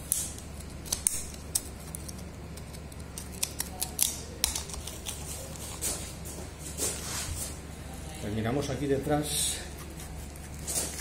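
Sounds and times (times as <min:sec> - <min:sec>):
knife clicking and scraping meat: 0:00.0 - 0:05.8.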